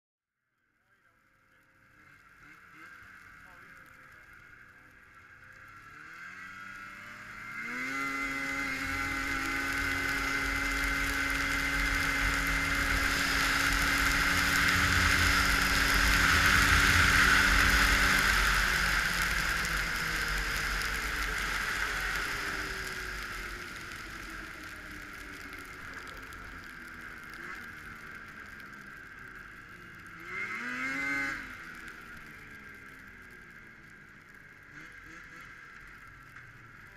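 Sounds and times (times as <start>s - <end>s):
snowmobile engine accelerating: 1.4s - 36.9s
rush of wind noise: 12.6s - 20.2s.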